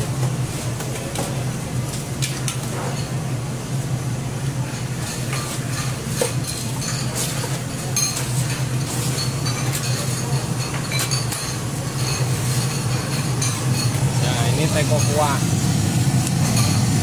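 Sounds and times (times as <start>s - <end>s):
steady low hum: 0.0s - 17.0s
cups and kitchenware clinking: 4.7s - 15.4s, 16.4s - 17.0s.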